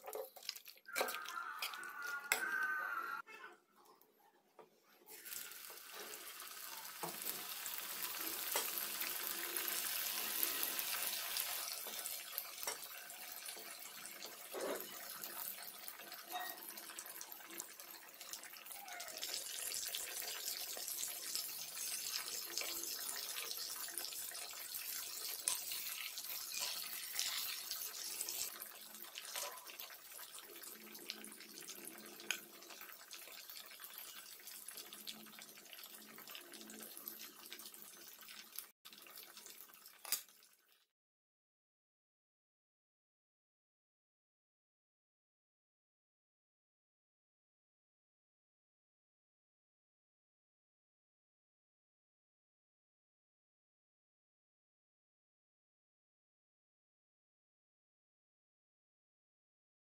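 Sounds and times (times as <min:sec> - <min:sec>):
fish deep-frying in oil: 0:00.0 - 0:02.7, 0:05.1 - 0:40.9.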